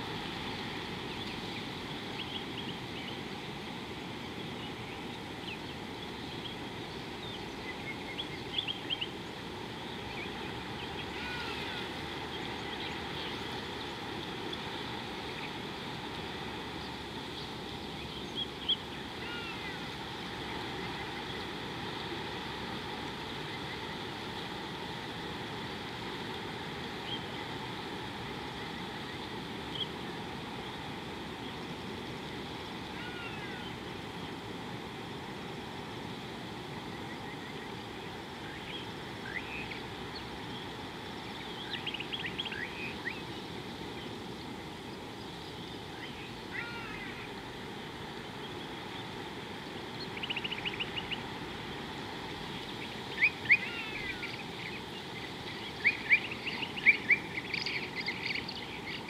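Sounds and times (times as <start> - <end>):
outdoor background noise: 0.0 - 59.0
bird chirps: 50.1 - 51.2.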